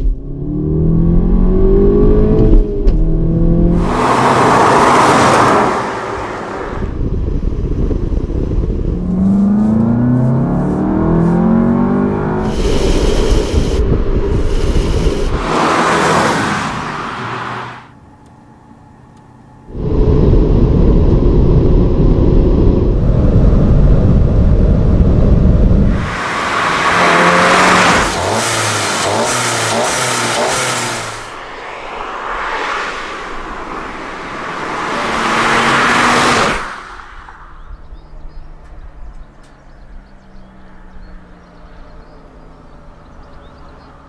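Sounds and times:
car engine accelerating hard: 0.0 - 7.0, 8.4 - 17.8, 22.7 - 37.0
low engine hum: 0.0 - 16.9
car passing by loudly: 3.6 - 7.0, 15.2 - 17.9, 25.9 - 37.9.

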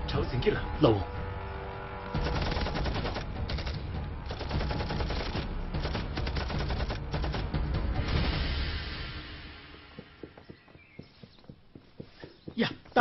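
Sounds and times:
machine-gun and rifle fire: 2.2 - 7.6.

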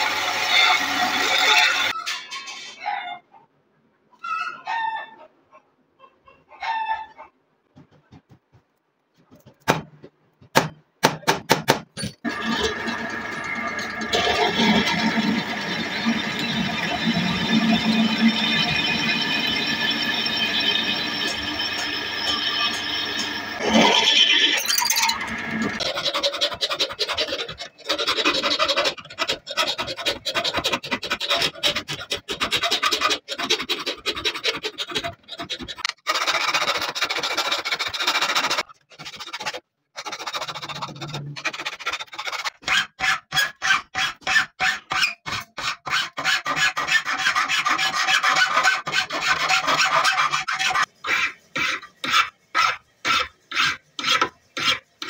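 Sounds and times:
hand file rasping on steel: 25.8 - 55.0.

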